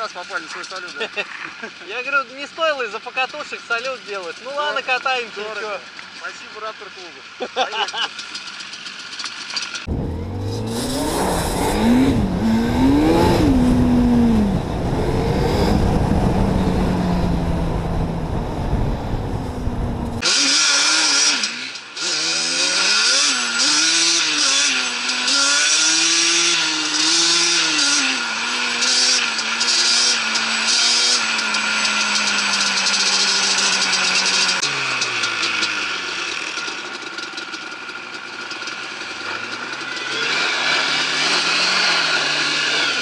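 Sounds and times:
atv engine revving: 7.3s - 43.0s
wind rumble on microphone: 11.3s - 20.2s.

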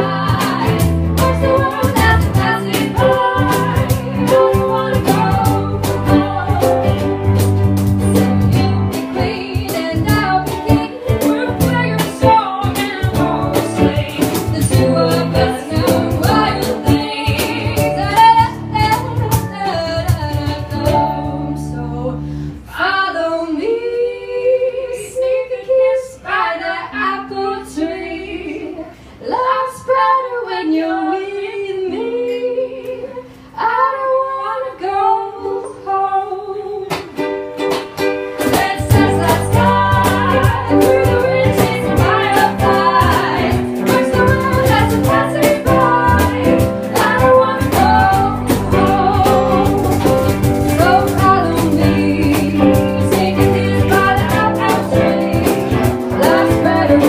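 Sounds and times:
drums: 0.0s - 21.5s, 36.9s - 57.0s
guitars: 0.0s - 22.8s, 36.7s - 57.0s
women singing: 0.0s - 37.2s, 38.3s - 57.0s
plucked strings: 36.9s - 57.0s.

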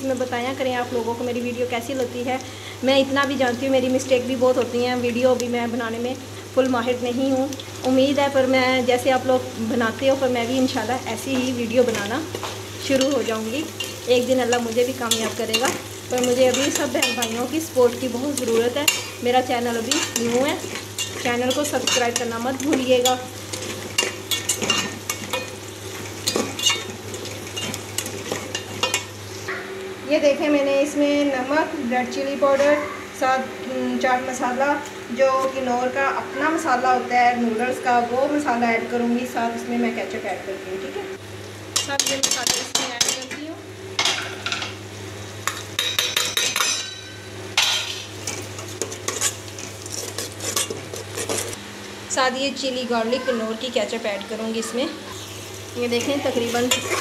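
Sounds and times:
food sizzling in pot: 0.0s - 29.6s, 41.2s - 57.0s
spoon clinking and scraping pot: 13.0s - 17.5s, 19.8s - 25.6s, 26.2s - 29.1s, 45.5s - 51.6s, 56.7s - 57.0s
metal spatula scraping a pot: 48.8s - 51.6s, 56.7s - 57.0s.

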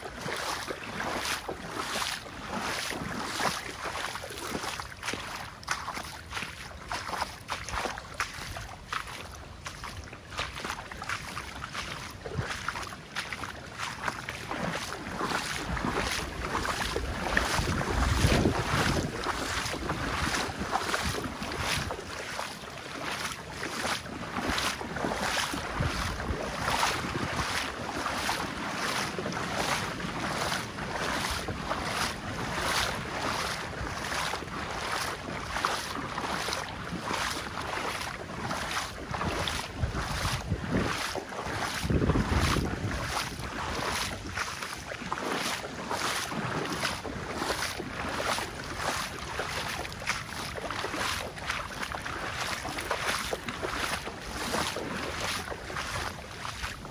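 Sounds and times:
footsteps walking: 0.2s - 56.9s
wind buffeting microphone: 15.5s - 22.0s, 25.6s - 27.7s, 39.0s - 44.4s.

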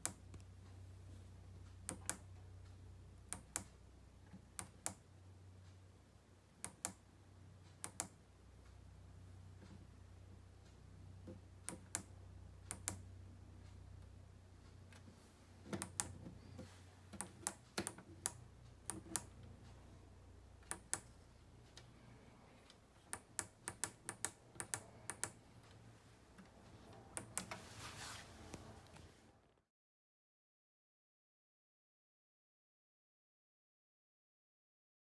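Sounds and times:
push buttons clicking: 4.4s - 5.0s, 6.6s - 7.0s, 7.8s - 8.2s, 11.3s - 12.1s, 12.7s - 13.0s, 15.7s - 19.5s, 20.6s - 25.8s, 26.4s - 27.6s.

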